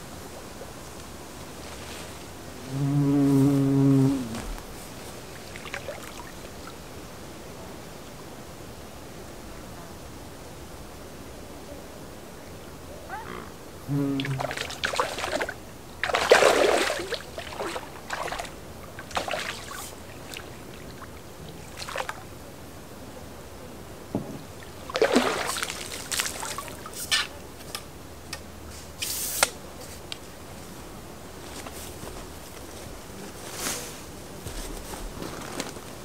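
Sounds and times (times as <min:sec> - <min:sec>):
water splashing: 0:03.9 - 0:06.8, 0:13.3 - 0:22.3, 0:24.5 - 0:27.1.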